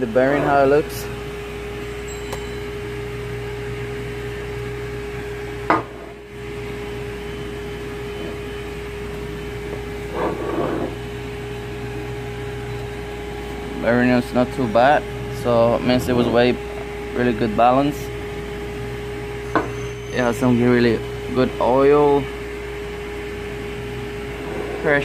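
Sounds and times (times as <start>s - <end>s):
steady low hum: 0.0s - 25.0s
metal knock on concrete floor: 5.7s - 6.0s.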